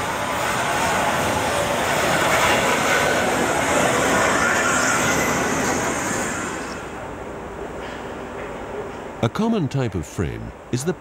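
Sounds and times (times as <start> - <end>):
wheels on rails: 0.0 - 7.0
steam locomotive passing: 0.0 - 9.2.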